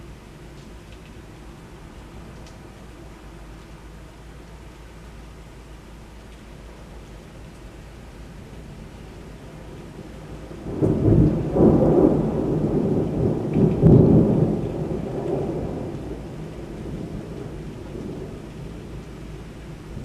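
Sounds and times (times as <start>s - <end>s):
steady rain: 0.0s - 20.0s
thunder rumbling: 9.6s - 20.0s.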